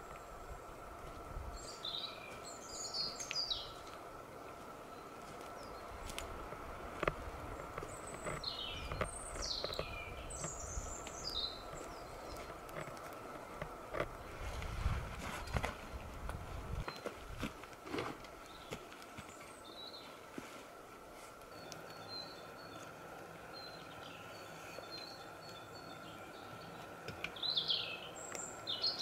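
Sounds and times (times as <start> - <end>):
songbird chirping: 0.0 - 29.0
footsteps on forest floor: 1.0 - 21.4
faint steady tone: 18.6 - 28.9.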